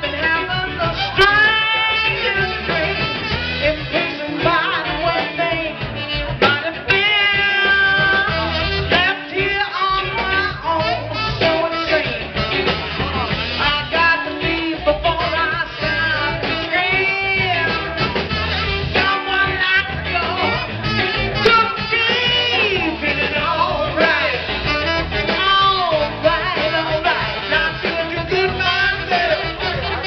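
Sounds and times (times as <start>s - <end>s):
woman singing: 0.0s - 12.7s, 13.5s - 20.8s, 21.4s - 24.6s, 25.2s - 30.0s
bass guitar: 0.0s - 30.0s
drums: 0.0s - 30.0s
electric guitars: 0.0s - 30.0s.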